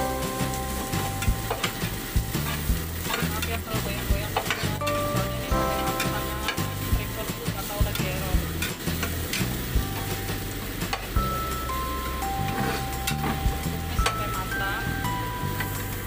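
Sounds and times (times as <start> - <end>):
background music: 0.0 - 16.0
spice paste sizzling in oil: 0.0 - 16.0
spatula scraping and tapping pan: 0.4 - 5.1, 5.7 - 10.2.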